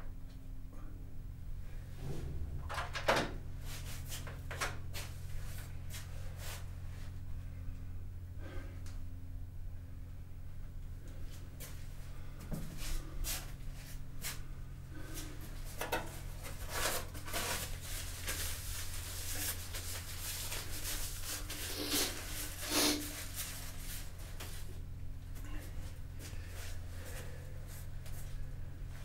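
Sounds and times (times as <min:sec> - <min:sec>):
steady low hum: 0:00.0 - 0:29.0
paper towel rustling: 0:16.2 - 0:24.7.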